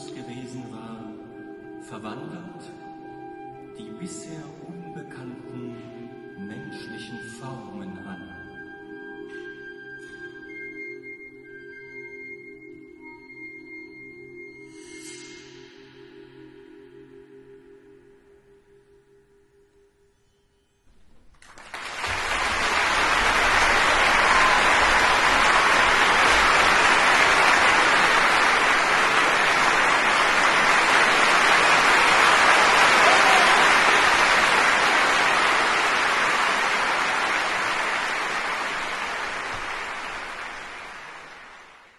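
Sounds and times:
audience applauding: 0:21.3 - 0:41.9.

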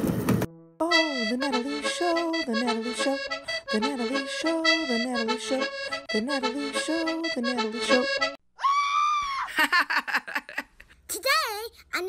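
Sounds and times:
bouncy theme music: 0:00.4 - 0:08.4.

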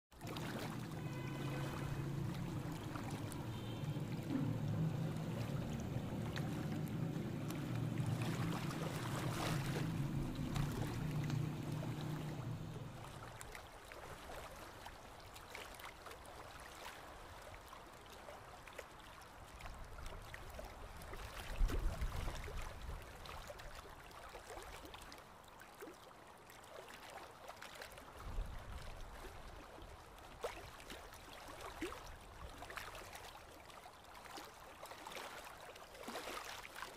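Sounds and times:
steady low hum: 0:01.7 - 0:13.1.

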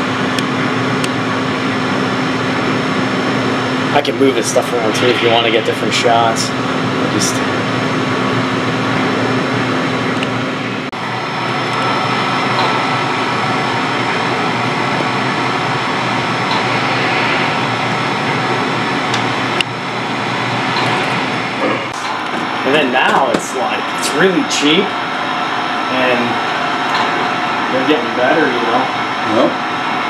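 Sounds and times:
low hum: 0:02.5 - 0:24.2.

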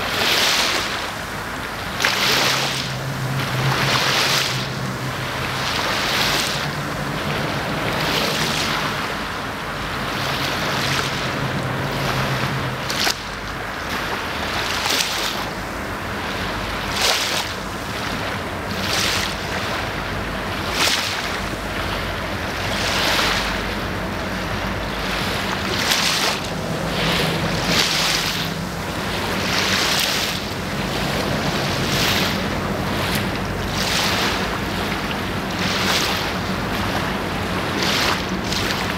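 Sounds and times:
river water lapping and splashing: 0:00.0 - 0:38.9
low steady hum: 0:00.8 - 0:38.9.

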